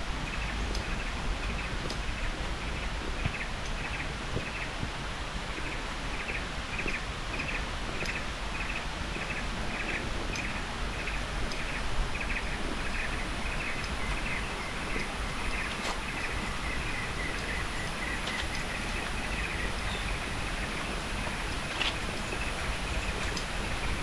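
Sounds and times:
faint clicks: 10.3 - 10.5, 11.4 - 11.7, 17.2 - 20.0, 21.5 - 23.6.

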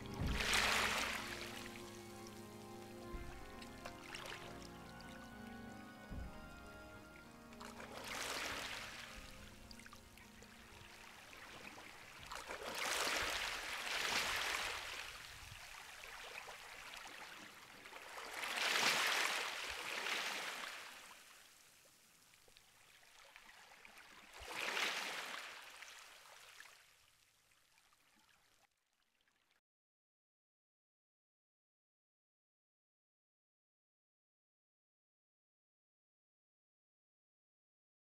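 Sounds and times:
sea waves washing in: 0.0 - 5.4, 6.1 - 21.2, 24.3 - 25.8.

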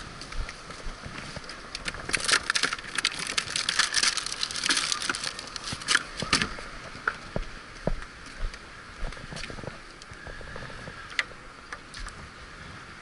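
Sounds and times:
hand rummaging through ice and bags: 1.8 - 6.5.

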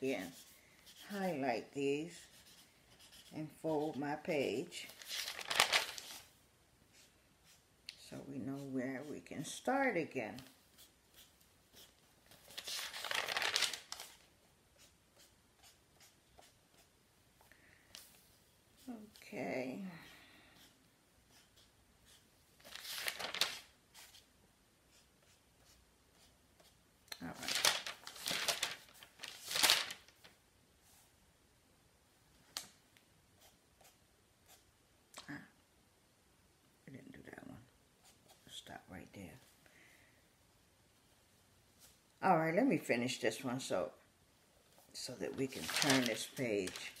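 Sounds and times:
faint paper rustles: 4.8 - 6.3, 10.3 - 14.3, 21.5 - 24.3, 26.2 - 31.1, 44.7 - 47.0
paper crinkling as folded: 4.9 - 6.3, 12.3 - 14.3, 22.6 - 23.7, 27.2 - 30.4, 45.4 - 47.0.

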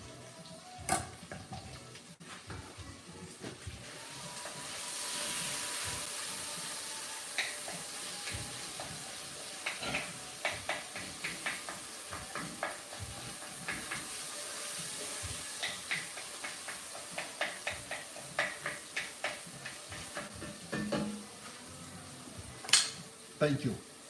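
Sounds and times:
sizzling hiss of frying: 0.0 - 24.0
spoon knocking against pot: 15.6 - 21.3.

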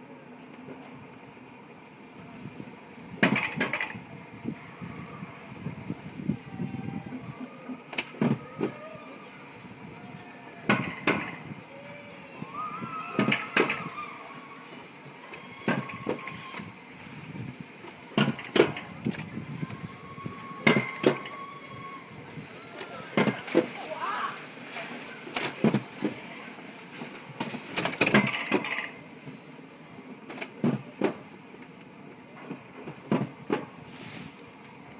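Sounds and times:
coaster sled rumbling on rails: 0.0 - 34.9
faint wheel whine: 0.0 - 34.9
sharp clacks on rails: 10.6 - 11.4.

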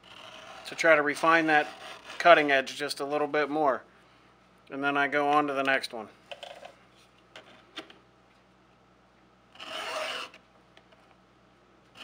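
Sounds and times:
file rasping on chainsaw tooth: 0.1 - 2.4.

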